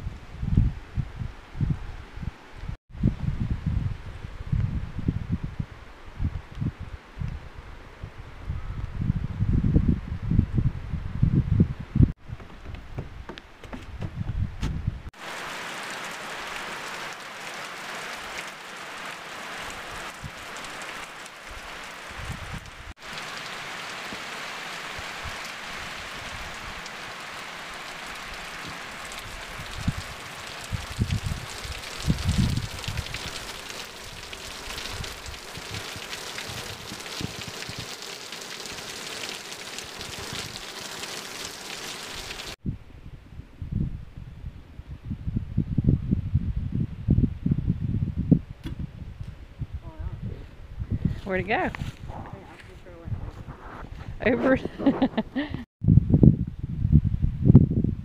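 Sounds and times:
low thumps on microphone: 12.2 - 15.1, 48.2 - 49.4
rain falling on trees and leaves: 15.2 - 42.6.

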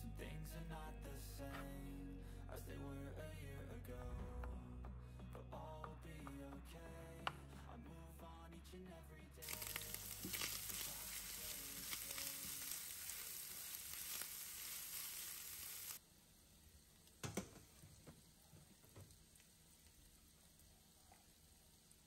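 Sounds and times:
spatula stirring: 9.4 - 16.0
ham sizzling in a pan: 9.4 - 22.0.

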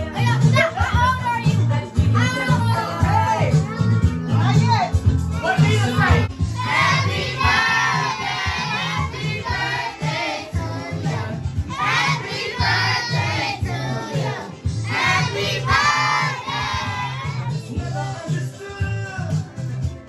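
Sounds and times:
music with repeating bass line: 0.0 - 20.0
group of voices singing: 5.6 - 19.5.

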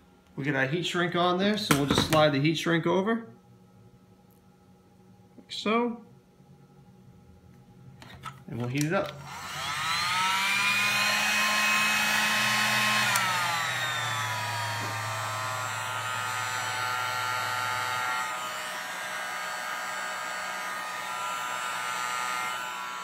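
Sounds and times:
heat gun fan motor whining: 8.6 - 23.0.

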